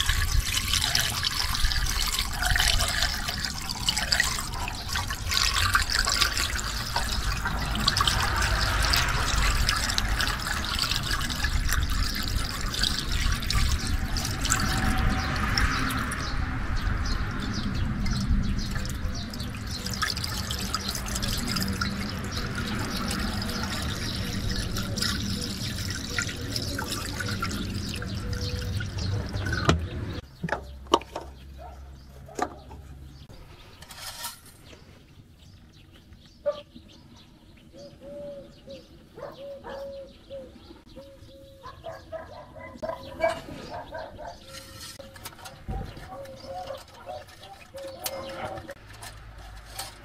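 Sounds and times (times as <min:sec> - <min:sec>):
liquid pouring: 0:00.0 - 0:16.2, 0:18.0 - 0:30.2.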